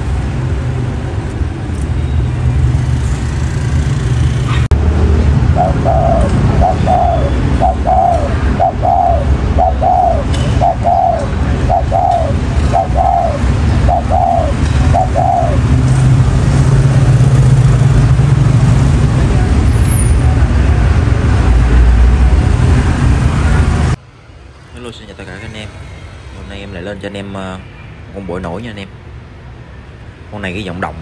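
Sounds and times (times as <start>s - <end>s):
low traffic rumble: 0.0s - 31.0s
dove cooing: 5.5s - 15.7s.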